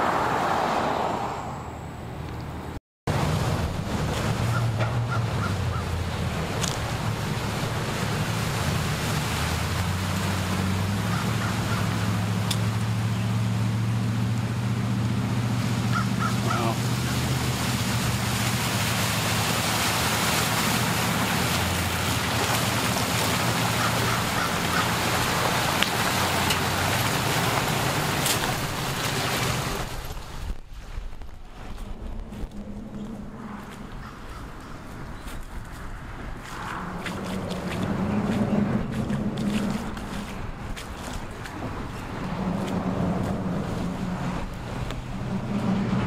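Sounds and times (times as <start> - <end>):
vehicle engine running: 3.1 - 30.6, 31.2 - 46.0
bird calls: 15.9 - 17.2, 23.7 - 25.0, 32.9 - 35.5.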